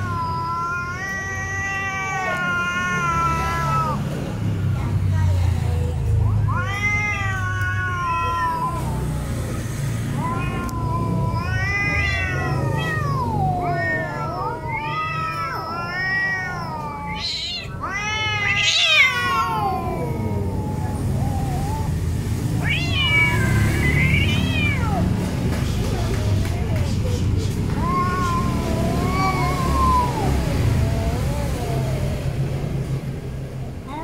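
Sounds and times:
cats yowling: 0.0s - 4.5s, 6.2s - 26.1s, 27.0s - 33.0s, 33.6s - 34.0s
cat hissing: 0.0s - 4.6s, 6.4s - 34.0s.

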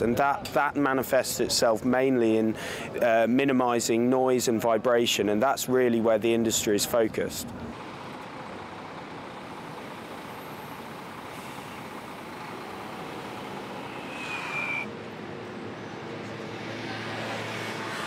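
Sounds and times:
road traffic noise: 0.0s - 18.0s
high squeal: 13.2s - 14.9s.

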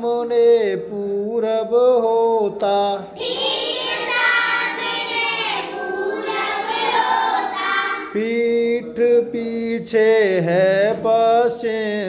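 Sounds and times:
children chanting in unison: 3.1s - 8.2s.

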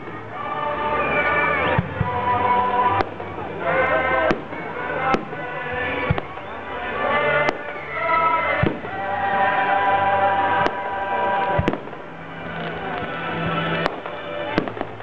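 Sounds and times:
music with long held notes: 0.0s - 15.0s
fireworks bangs: 1.0s - 15.0s.

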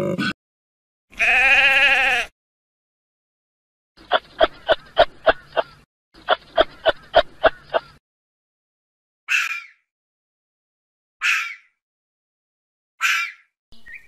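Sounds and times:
wavering bleat-like animal call: 1.1s - 2.3s
short clicking animal calls: 4.1s - 8.0s.

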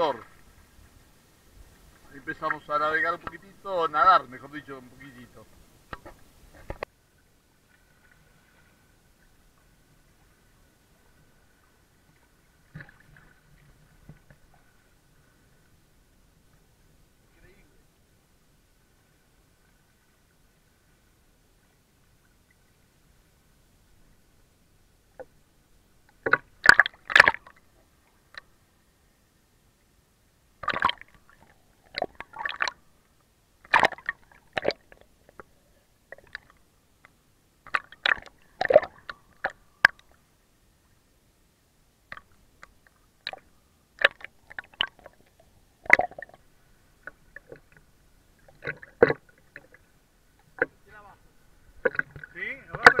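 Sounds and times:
water splashing against camera: 1.6s - 6.9s, 26.1s - 27.7s, 30.6s - 32.9s, 33.6s - 40.2s, 42.1s - 53.0s.

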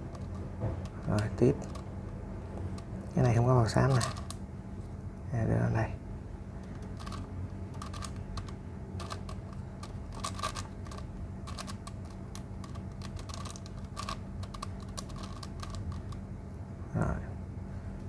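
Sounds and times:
plastic puzzle clicking as turned: 2.7s - 4.4s, 6.7s - 16.2s.

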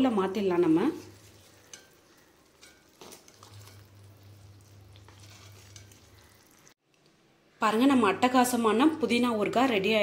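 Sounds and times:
metal utensils scraping a pot: 0.6s - 6.7s.

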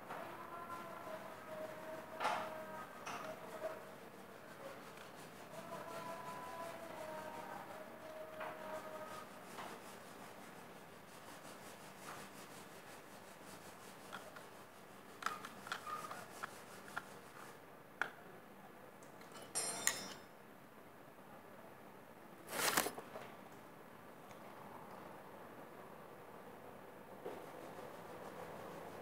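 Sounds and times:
brushing rustle: 0.1s - 17.6s, 27.3s - 29.0s
handling noise on phone microphone: 22.4s - 23.2s.

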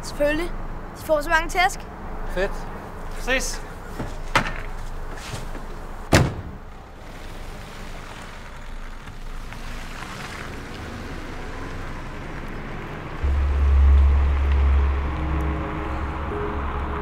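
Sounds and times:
car door slamming: 4.0s - 4.7s, 6.1s - 6.7s
car driving off: 4.9s - 17.0s.

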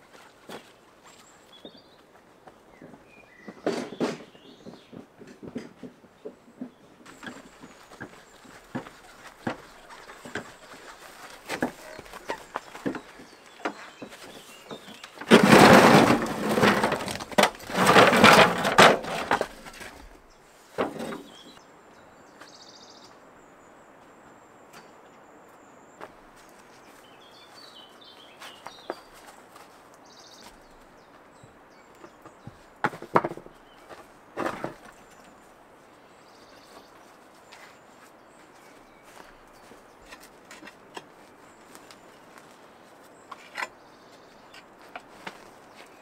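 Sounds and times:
birds chirping faintly: 0.0s - 46.0s
stones clattering and scraping: 7.1s - 20.2s.

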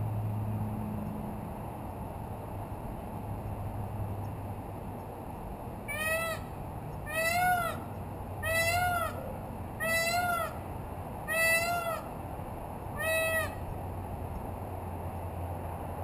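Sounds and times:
peacock calling: 5.9s - 12.2s, 12.9s - 13.7s.

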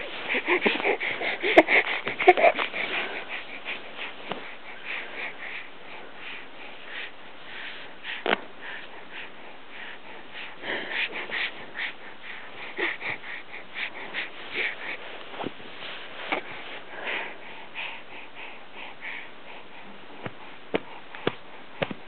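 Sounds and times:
baby breathing through nose: 0.0s - 22.0s.

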